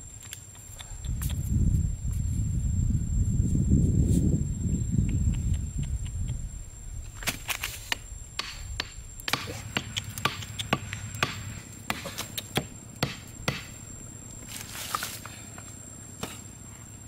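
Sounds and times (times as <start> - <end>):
stake being hammered into ground: 7.9 - 13.8.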